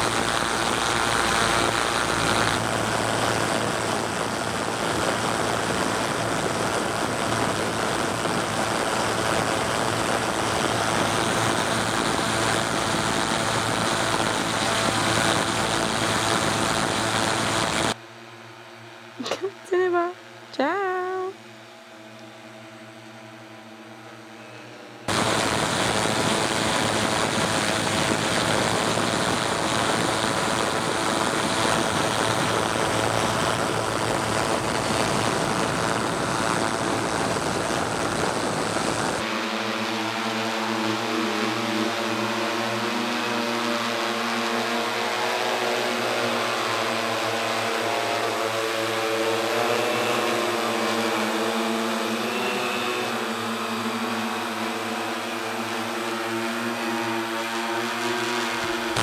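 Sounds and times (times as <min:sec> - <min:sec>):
drone propellers whining: 0:24.4 - 0:59.0.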